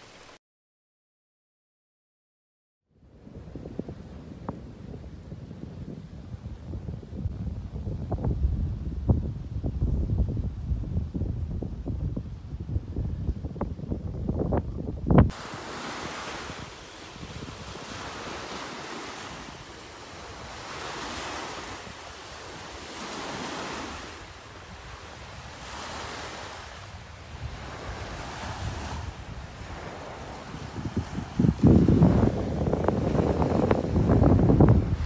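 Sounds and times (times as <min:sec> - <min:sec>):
waves breaking on beach: 0:00.0 - 0:00.4, 0:15.3 - 0:35.0
wind buffeting microphone: 0:03.0 - 0:35.0.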